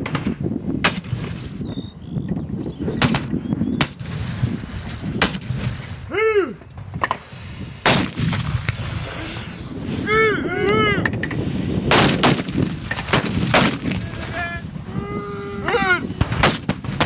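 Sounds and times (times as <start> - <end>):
mortars firing sharp blasts: 0.0 - 1.6, 3.0 - 6.1, 6.7 - 9.9, 11.4 - 14.6, 16.1 - 17.0
low rumble of distant rounds: 4.0 - 17.0.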